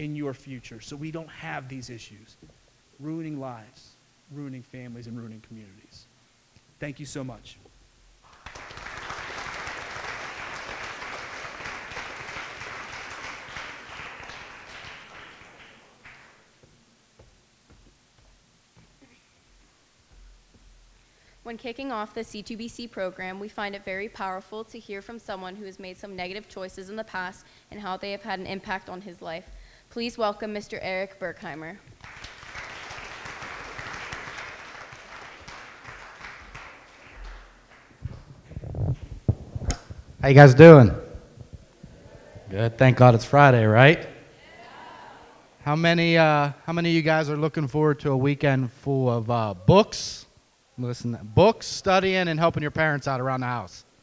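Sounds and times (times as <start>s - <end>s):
audience applauding: 8.2s - 16.5s, 32.0s - 38.5s.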